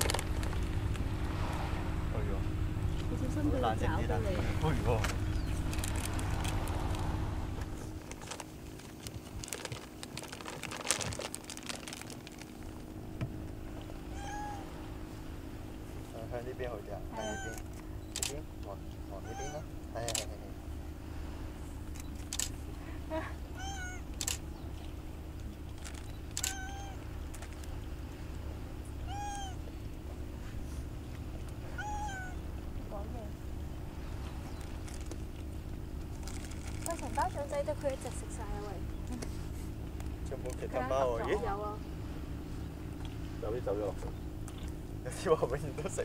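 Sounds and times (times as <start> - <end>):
low steady hum: 0.0 - 46.0
food packet crinkling: 8.2 - 12.7, 36.2 - 37.2
cat meowing: 14.1 - 14.7, 17.1 - 17.6, 19.2 - 19.7, 23.5 - 24.1, 26.4 - 27.1, 29.0 - 29.6, 31.7 - 32.5.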